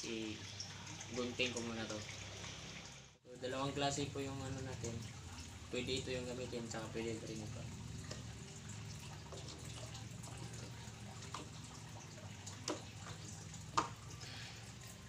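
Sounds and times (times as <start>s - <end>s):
running water trickling: 0.0s - 15.0s
plastic knocks and clicks: 13.7s - 14.0s.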